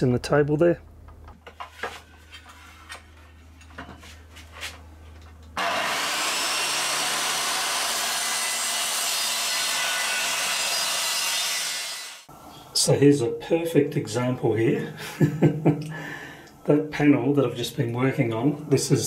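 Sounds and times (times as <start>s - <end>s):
circular saw cutting plywood: 5.6s - 12.3s.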